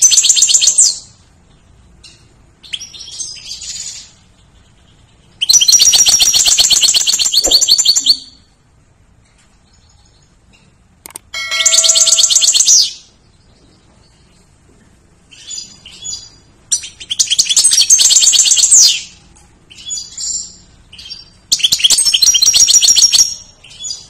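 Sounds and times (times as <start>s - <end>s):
goldfinch twittering song: 11.4s - 14.4s.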